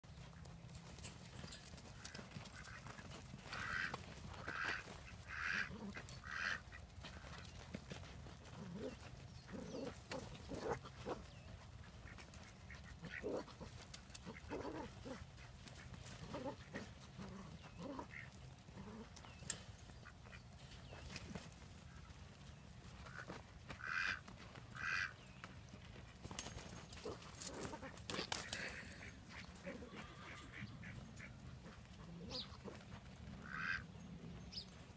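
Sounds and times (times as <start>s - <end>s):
ducks quacking: 2.0s - 7.6s, 8.6s - 19.0s, 23.0s - 25.2s, 27.0s - 34.0s.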